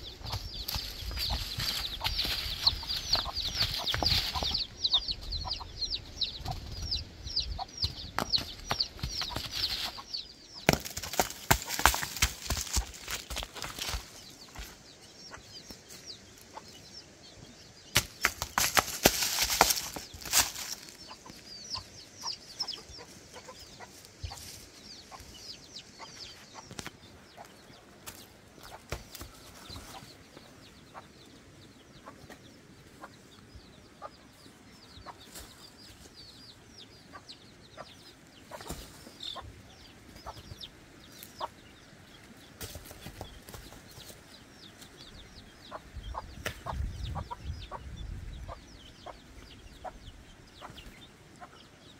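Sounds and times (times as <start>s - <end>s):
birds chirping: 0.0s - 51.9s
footsteps crunching on stones: 0.2s - 4.7s, 7.8s - 14.8s, 18.0s - 21.4s.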